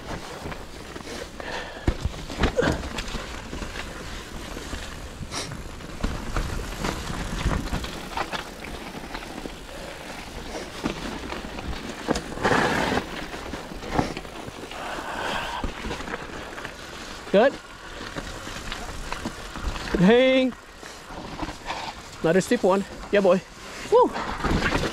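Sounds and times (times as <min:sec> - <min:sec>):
bike clicks and rattles: 0:00.0 - 0:24.9
bike tyres rolling over dirt: 0:00.0 - 0:24.9.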